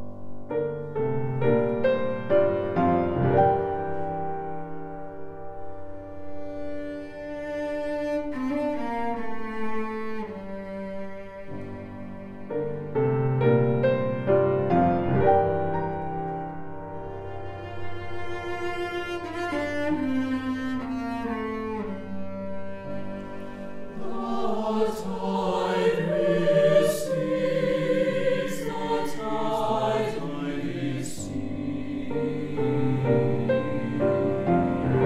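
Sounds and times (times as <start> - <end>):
cello melody: 0.0 - 35.0
mixed choir singing: 23.9 - 35.0.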